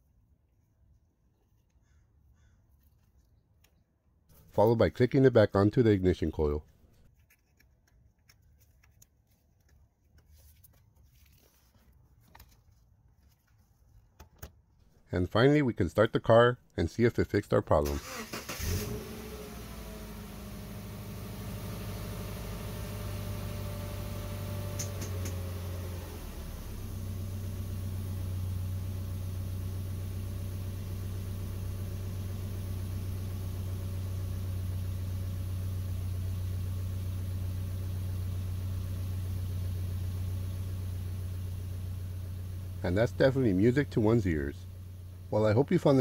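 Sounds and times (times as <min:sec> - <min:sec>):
car engine starting and idling: 0:17.8 - 0:46.0.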